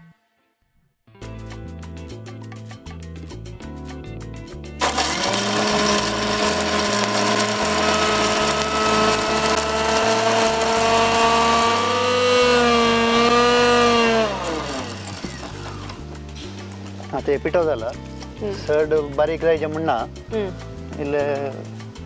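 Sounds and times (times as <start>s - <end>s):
electric mixer grinder whining: 4.8s - 16.0s.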